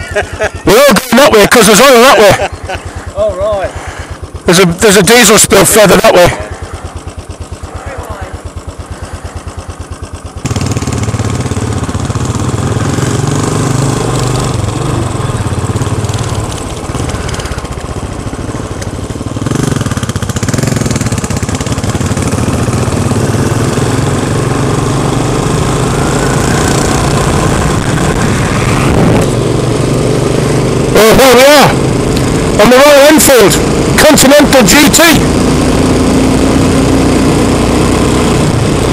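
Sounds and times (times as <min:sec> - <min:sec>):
motorcycle engine running: 0:00.0 - 0:38.9
wind rushing over microphone: 0:26.6 - 0:29.7.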